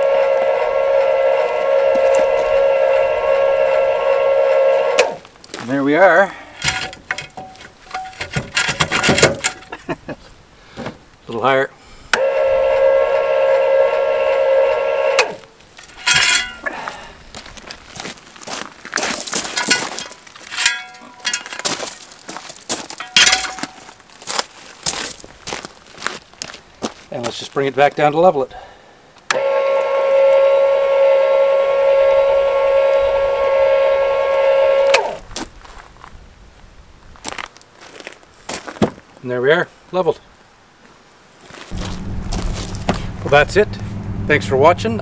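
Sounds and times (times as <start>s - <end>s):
electric jack motor whine: 0.0s - 5.2s, 12.1s - 15.5s, 29.3s - 35.2s, 41.8s - 44.4s
metal jack stand clank: 6.6s - 9.7s, 15.8s - 16.7s, 19.6s - 21.8s, 23.0s - 23.8s.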